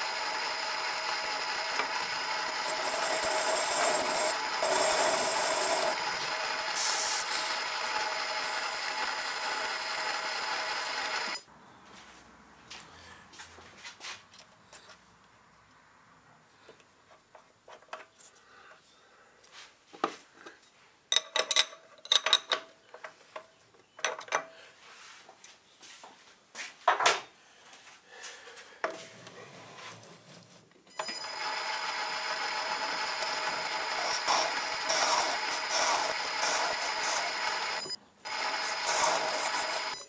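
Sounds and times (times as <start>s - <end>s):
lathe whine and cutting hiss: 0.0s - 11.4s, 31.3s - 40.0s.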